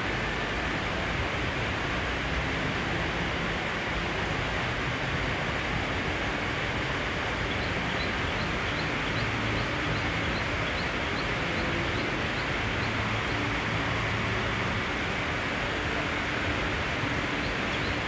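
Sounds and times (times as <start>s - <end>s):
rain hiss: 0.0s - 18.0s.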